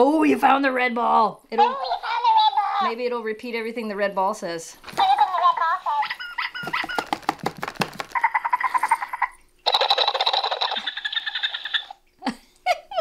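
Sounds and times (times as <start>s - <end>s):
toy speaker clicks: 9.7s - 10.9s.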